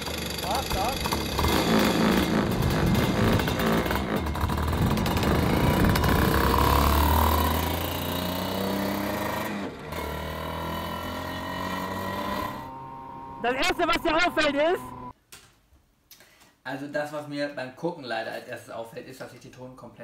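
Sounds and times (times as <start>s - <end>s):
kart engine revving: 0.0s - 15.1s.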